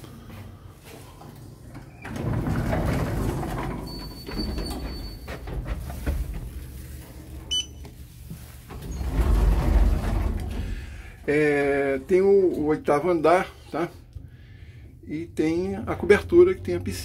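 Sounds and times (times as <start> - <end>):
elevator doors sliding: 0.9 - 12.6
elevator car rumbling: 1.7 - 7.8, 8.4 - 11.8, 15.1 - 17.0.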